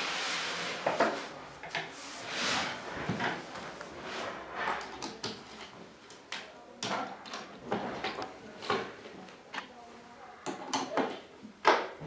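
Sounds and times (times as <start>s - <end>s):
panels shuffling and scraping: 0.0s - 6.0s.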